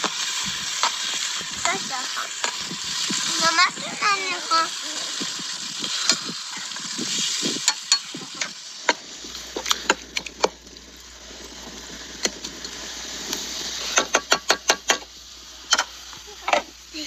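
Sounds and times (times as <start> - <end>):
meat filling sizzling in a pot: 0.0 - 17.0.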